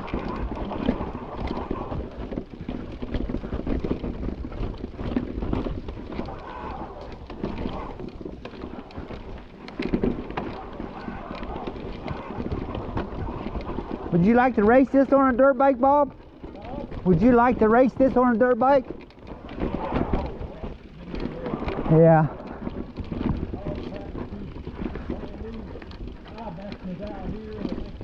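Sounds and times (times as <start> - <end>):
bike clicks and rattles: 0.0 - 28.0
tyres rolling on stone: 0.0 - 28.0
wind rumble on microphone: 16.0 - 28.0.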